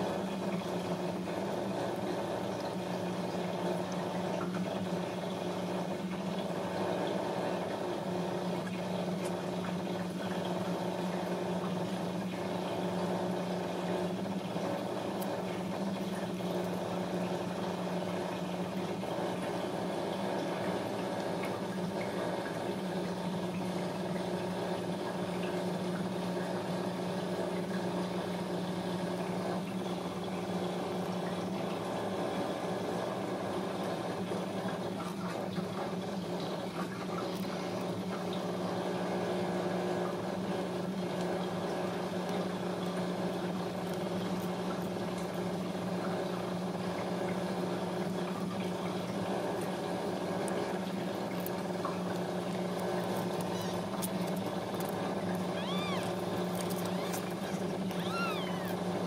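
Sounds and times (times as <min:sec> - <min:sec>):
kitten mewing: 0:52.8 - 0:59.0.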